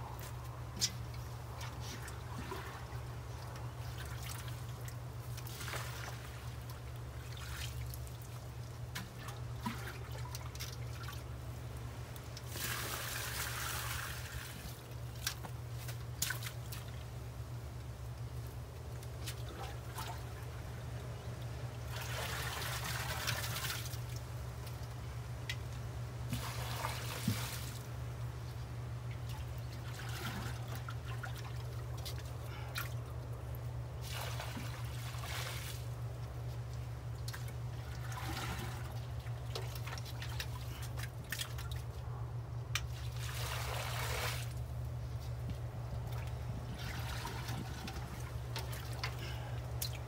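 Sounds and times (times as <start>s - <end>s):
water splashing and trickling: 0.1s - 50.0s
wind rumble on microphone: 45.4s - 48.5s.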